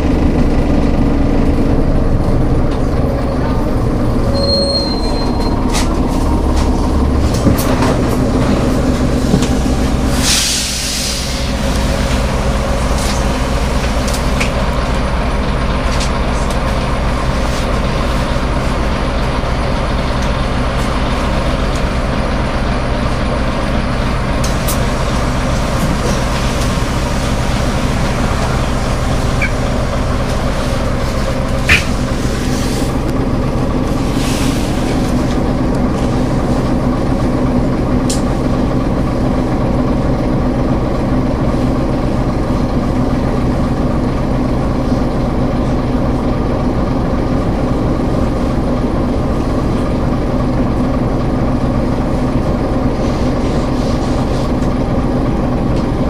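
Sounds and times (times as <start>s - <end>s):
bus engine running: 0.0s - 56.0s
brief high squeal: 4.3s - 5.6s
compressed air hiss: 10.2s - 11.5s.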